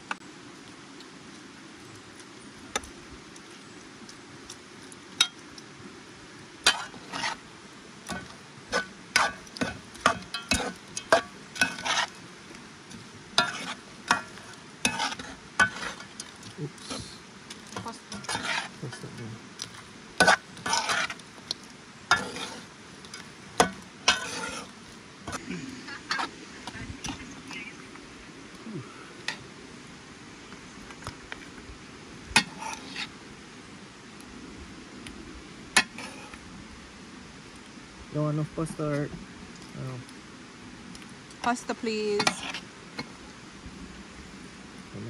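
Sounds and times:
utensil scraping in a pot: 6.6 - 12.2, 12.8 - 25.4, 32.4 - 33.2, 35.8 - 36.4, 41.5 - 43.1.

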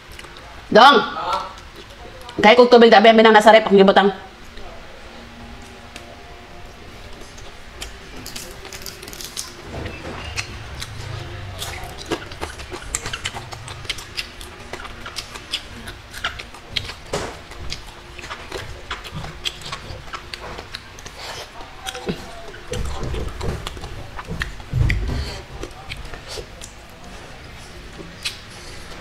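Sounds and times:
chewing with wet mouth clicks: 11.6 - 26.8, 28.2 - 28.7.

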